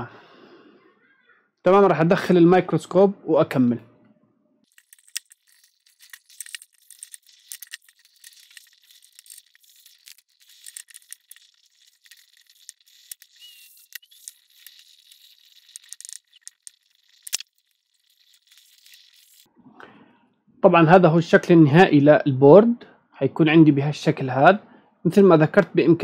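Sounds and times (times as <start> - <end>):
small clicks and rattles of lamp: 4.7 - 19.5.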